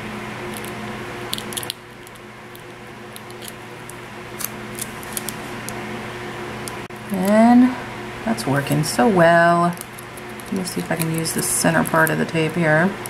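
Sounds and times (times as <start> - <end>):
electric fan humming: 0.0 - 13.0
sticky tape crackling and snapping: 0.5 - 5.8, 9.7 - 12.6.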